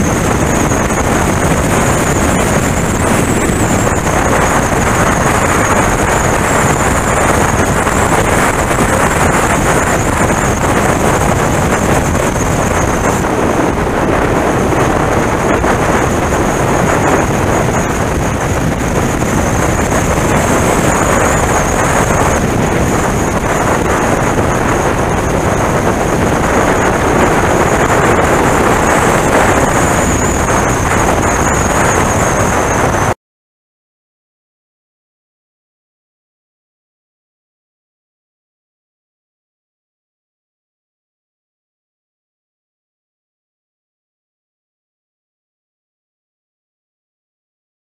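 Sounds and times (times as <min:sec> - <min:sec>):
road noise: 0:00.0 - 0:33.2
thin high whine: 0:00.0 - 0:33.2
wind rushing over microphone: 0:00.0 - 0:33.2.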